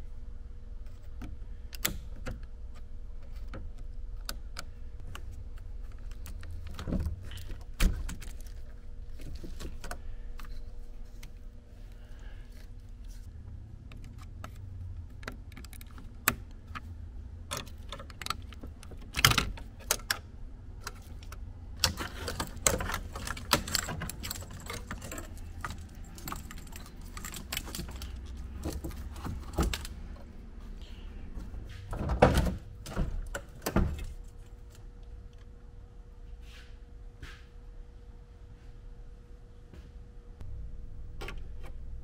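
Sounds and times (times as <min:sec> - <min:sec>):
low steady hum: 0:00.0 - 0:42.0
tools clicking and rattling: 0:13.8 - 0:16.9, 0:17.5 - 0:20.2, 0:20.8 - 0:30.3.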